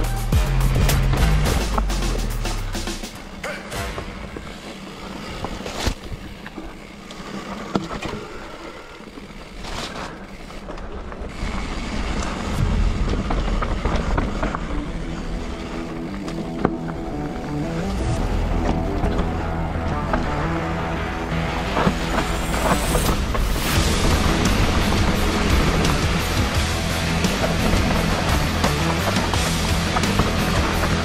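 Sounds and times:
bike tyres on dirt trail: 0:03.2 - 0:31.0
bike rattling and knocking: 0:04.0 - 0:17.4, 0:21.7 - 0:31.0.

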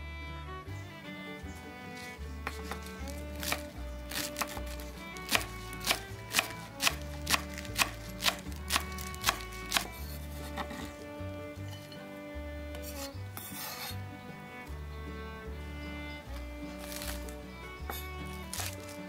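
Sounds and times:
soft background music: 0:00.2 - 0:19.0
knife chopping on wooden board: 0:02.4 - 0:11.0, 0:16.8 - 0:17.3, 0:17.9 - 0:19.0.

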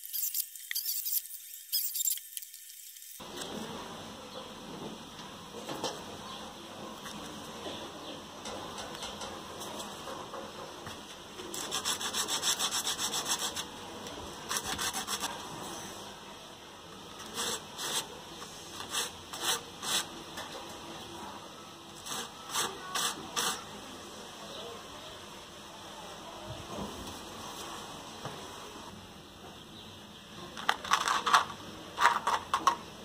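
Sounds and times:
wood rubbed on sandpaper: 0:11.5 - 0:13.7, 0:14.5 - 0:15.4, 0:17.3 - 0:18.1, 0:22.0 - 0:23.6.

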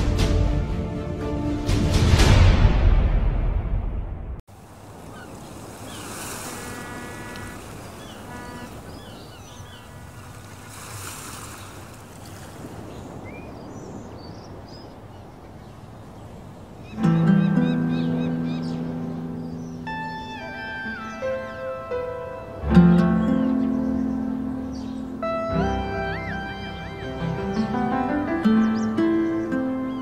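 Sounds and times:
waves washing in: 0:04.5 - 0:29.9
birds chirping and calling: 0:05.0 - 0:30.0
short honking bird calls: 0:05.1 - 0:10.8.

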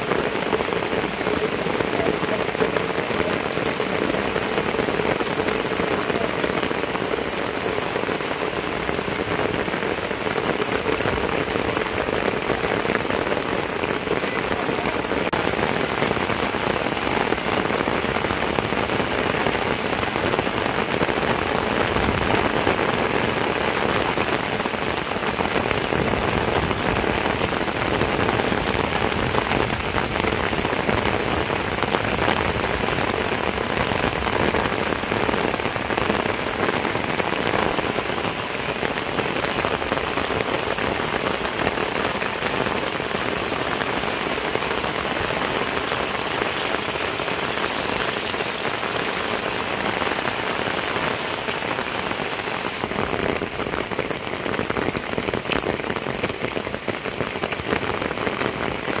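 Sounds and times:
heavy rain on roofs: 0:00.0 - 0:59.0.

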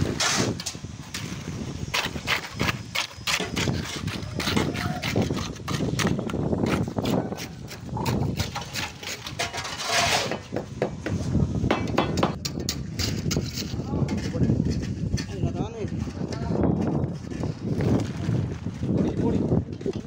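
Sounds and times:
construction knocks and taps: 0:10.3 - 0:13.4.

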